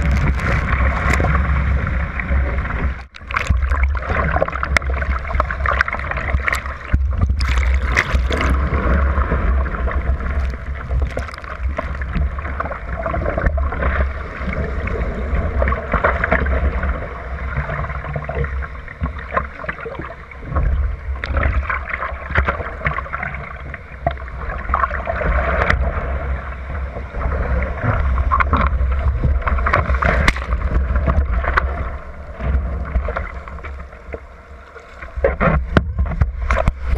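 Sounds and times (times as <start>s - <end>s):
wind rumble on microphone: 0.0s - 19.5s, 20.2s - 34.2s, 35.1s - 36.9s
water rushing against hull: 0.0s - 36.9s
sharp water splashes: 3.0s - 13.5s, 29.6s - 30.8s.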